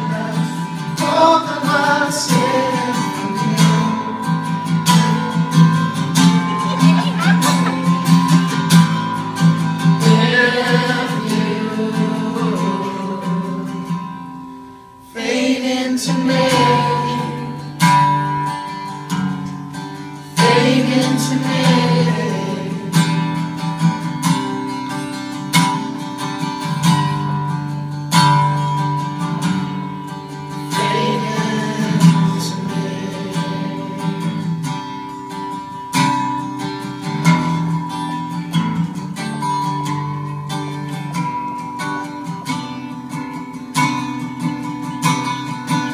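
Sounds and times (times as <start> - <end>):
man singing: 0.0 - 5.4, 10.0 - 13.9, 15.1 - 17.8, 20.4 - 23.2, 30.7 - 34.6
acoustic guitar strumming: 0.0 - 45.9.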